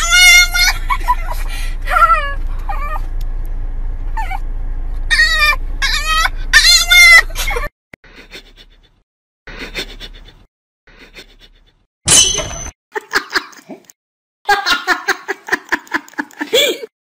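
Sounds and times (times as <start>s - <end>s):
low car cabin rumble: 0.0s - 7.7s.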